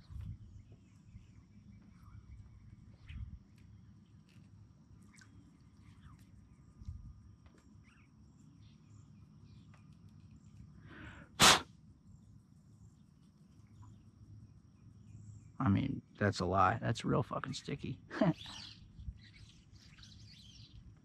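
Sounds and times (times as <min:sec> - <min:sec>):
faint bird chirps: 0:00.0 - 0:11.3, 0:12.0 - 0:16.2, 0:18.2 - 0:21.0
puff of noise on microphone: 0:11.3 - 0:11.7.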